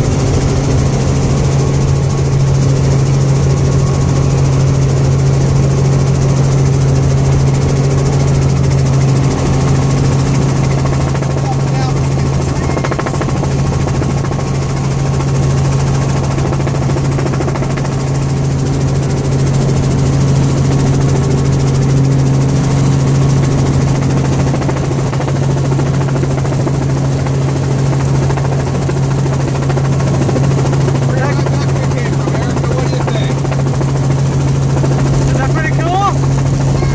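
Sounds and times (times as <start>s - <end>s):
helicopter engine and rotor hum: 0.0s - 36.9s.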